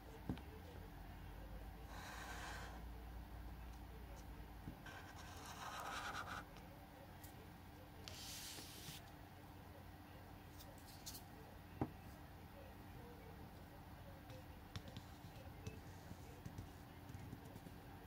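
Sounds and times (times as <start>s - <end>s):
marker scratching on paper: 4.8s - 6.4s, 8.1s - 9.0s.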